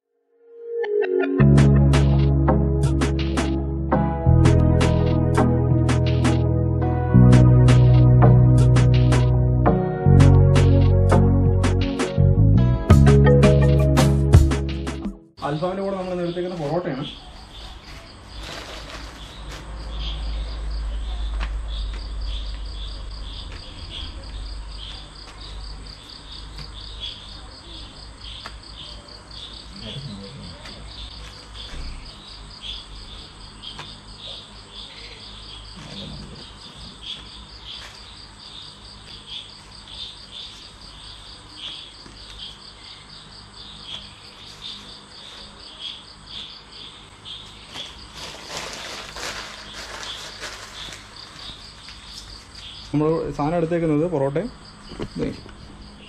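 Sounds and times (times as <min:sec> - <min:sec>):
crickets chirping: 0:15.4 - 0:56.0
low rumble: 0:20.3 - 0:25.8.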